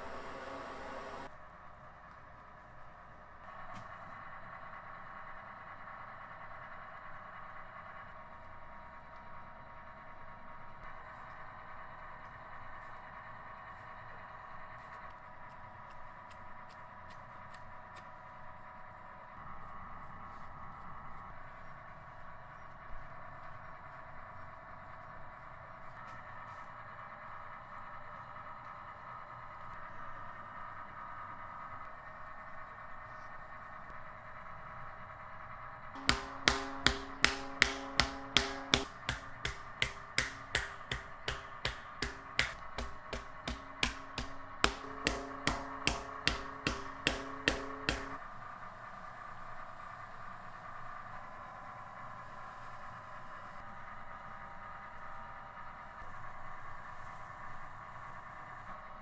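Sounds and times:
workshop machinery humming: 0.0 - 1.3, 36.0 - 48.2.

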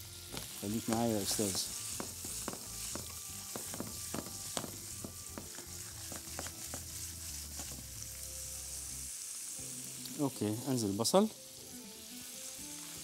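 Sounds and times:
sausages sizzling in hot oil: 0.0 - 13.0.

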